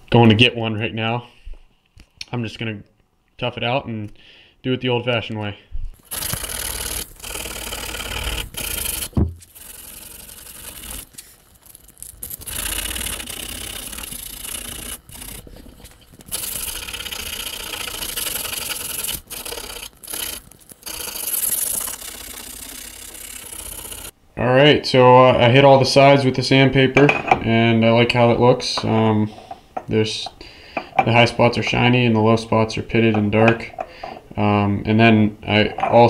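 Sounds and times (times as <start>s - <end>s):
sandpaper scraping metal: 6.0s - 24.1s.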